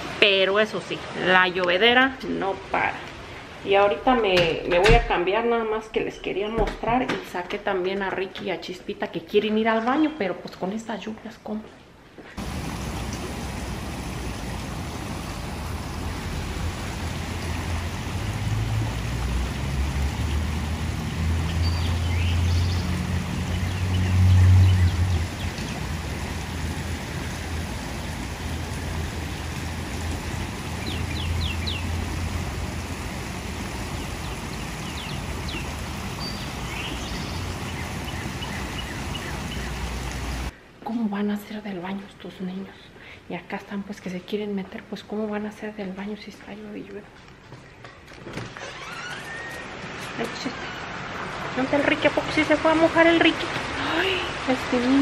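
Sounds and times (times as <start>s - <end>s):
heavy rain pouring: 0.0s - 7.1s, 12.4s - 40.6s, 48.1s - 55.0s.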